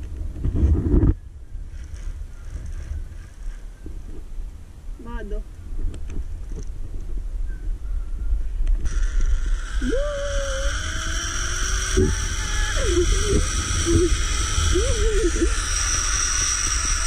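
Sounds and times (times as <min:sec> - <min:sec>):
wind buffeting microphone: 0:00.0 - 0:17.0
pulleys whining on cable: 0:08.8 - 0:17.0
wavering sliding tones: 0:08.8 - 0:17.0.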